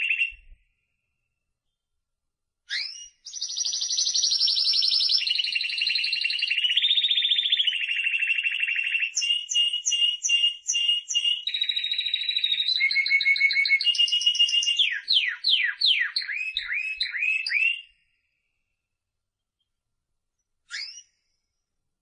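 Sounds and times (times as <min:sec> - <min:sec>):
canary singing trills: 0:00.0 - 0:00.6, 0:02.7 - 0:18.0, 0:20.7 - 0:21.2.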